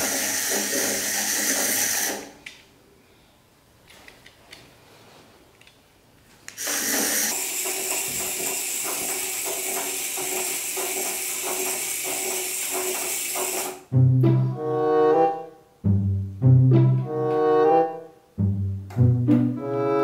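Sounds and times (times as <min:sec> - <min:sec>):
toy motor buzzing: 0:00.0 - 0:02.3, 0:06.6 - 0:13.9
toy legs rattling on wood: 0:06.6 - 0:13.8.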